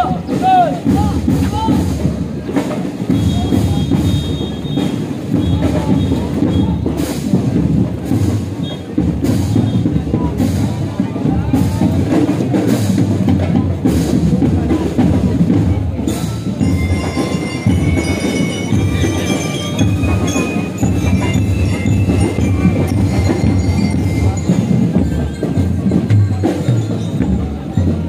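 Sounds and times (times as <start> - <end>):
marching drums: 0.0 - 28.0
bright bell-like notes: 16.1 - 28.0.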